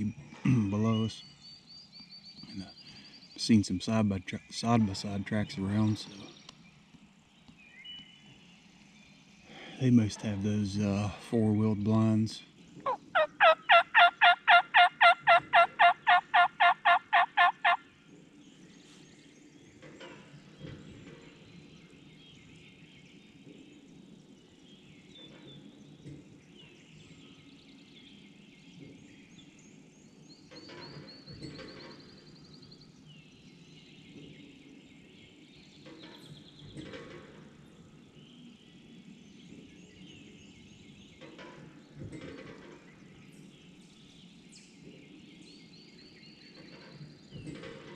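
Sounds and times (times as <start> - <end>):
faint songbird chirps: 0.0 - 47.9
turkey call hen yelps: 12.9 - 17.8.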